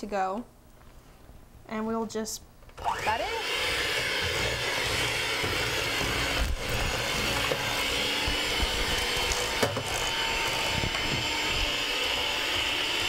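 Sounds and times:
electric hand mixer in metal bowl: 2.8s - 13.0s.

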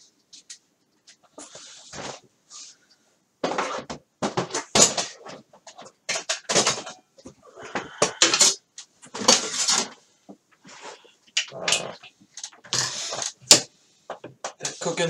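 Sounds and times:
tools clattering on workbench: 3.5s - 7.1s.

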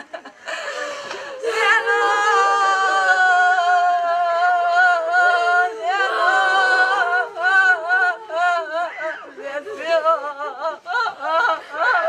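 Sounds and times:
woman wailing in grief: 0.7s - 3.5s.

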